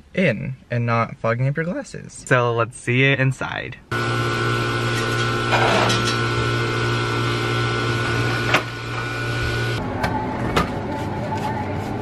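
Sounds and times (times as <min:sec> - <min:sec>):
refrigeration machinery hum: 0:03.9 - 0:11.8.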